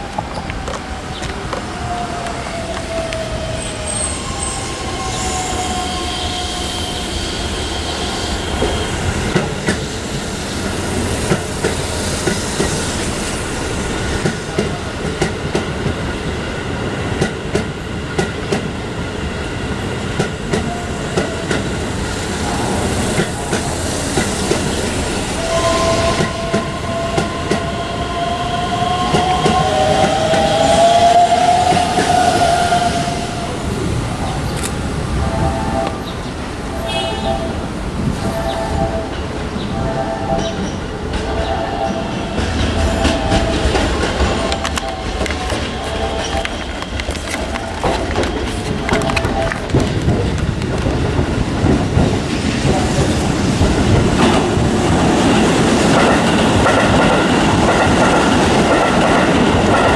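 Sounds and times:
train wheels clacking over joints: 40.4s - 59.9s.

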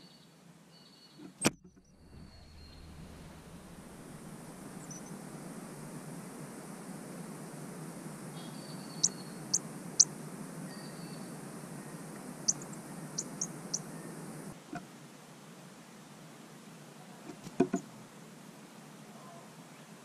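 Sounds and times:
steady hiss: 2.0s - 16.6s
bird chirping high and sharp: 12.5s - 14.1s.

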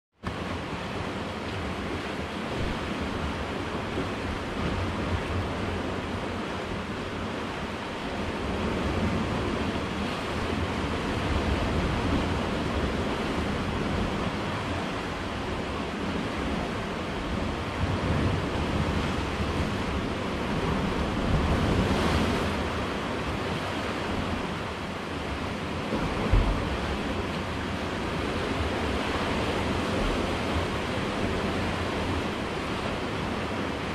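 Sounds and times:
surf washing on rocky shore: 0.3s - 33.9s.

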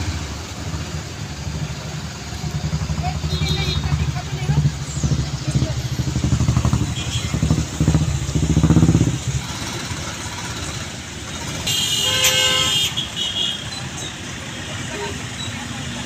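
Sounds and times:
engine chugging close by: 0.0s - 16.0s
vehicle horn honking: 3.2s - 4.0s, 6.9s - 7.4s, 11.6s - 13.8s, 14.9s - 15.2s.

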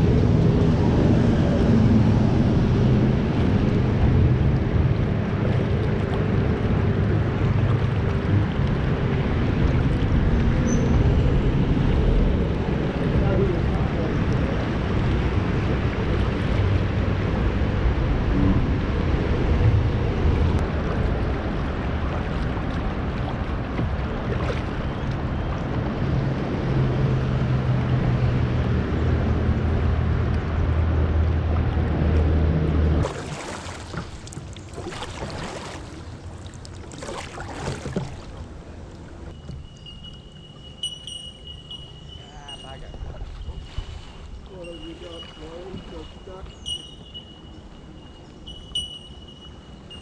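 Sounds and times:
moving water: 0.0s - 50.0s
paddle splashes: 0.2s - 18.6s, 20.4s - 28.6s, 29.4s - 40.9s, 42.2s - 48.2s
high whistle-like tone: 39.4s - 42.8s, 46.6s - 50.0s.

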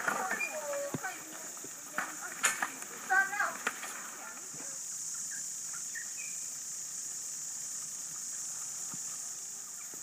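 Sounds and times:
insect chorus drone: 0.0s - 10.0s
faint bird chirps: 0.2s - 0.9s, 4.6s - 6.6s.

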